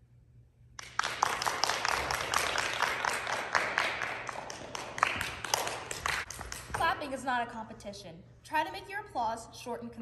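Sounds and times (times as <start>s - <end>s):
people applauding: 0.8s - 6.8s.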